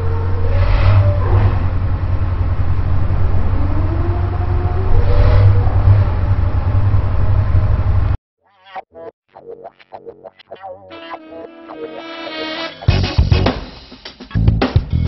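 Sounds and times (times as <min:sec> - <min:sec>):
engine rumble revving: 0:00.0 - 0:08.2
whooshes: 0:00.0 - 0:08.2.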